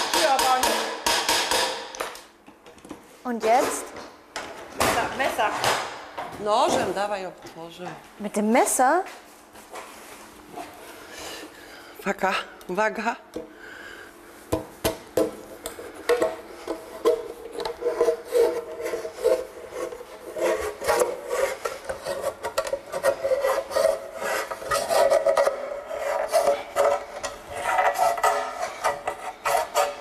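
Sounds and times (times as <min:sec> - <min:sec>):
knife scraping through tin lid: 0:17.5 - 0:30.0.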